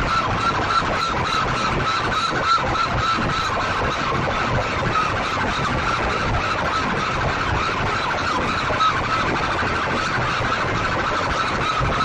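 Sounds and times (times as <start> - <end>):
distorted siren-like loudspeaker tone: 0.0 - 12.0.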